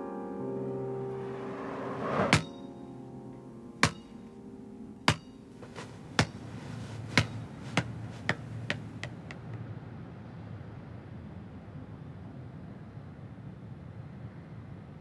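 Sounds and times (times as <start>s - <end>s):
ball bouncing on pavement: 2.3s - 2.6s, 3.8s - 4.1s, 5.1s - 9.5s.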